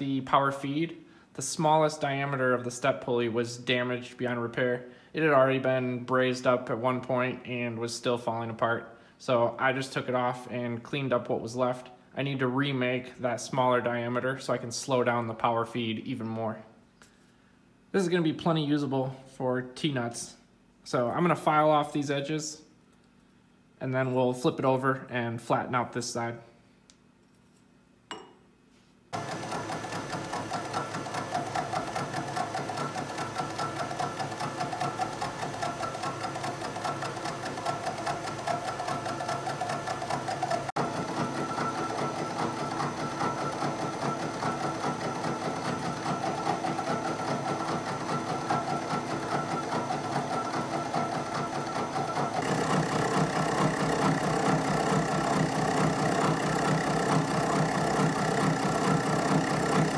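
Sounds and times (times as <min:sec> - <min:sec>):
milling machine chattering: 0:29.2 - 0:59.9.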